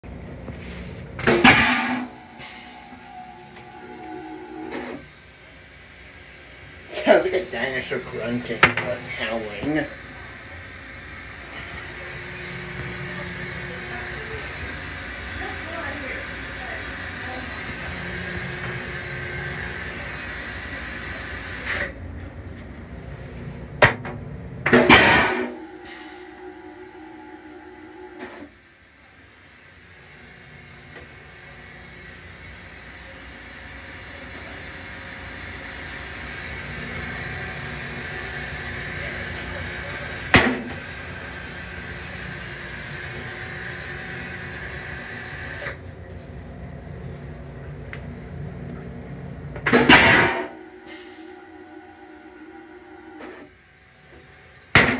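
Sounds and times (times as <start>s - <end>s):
train rumbling: 0.0s - 28.6s
toilet flush hissing: 1.2s - 22.0s, 24.7s - 45.8s, 49.7s - 54.9s
low rumble: 1.8s - 5.0s.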